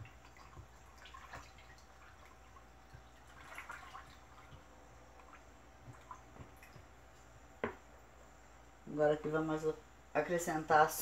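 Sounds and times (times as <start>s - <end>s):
liquid stirring in plastic jug: 0.0s - 7.0s.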